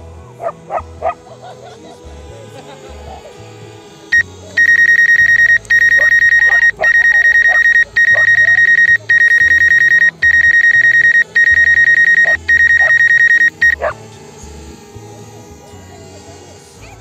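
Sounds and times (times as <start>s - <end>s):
electronic alarm beeping: 4.2s - 13.9s.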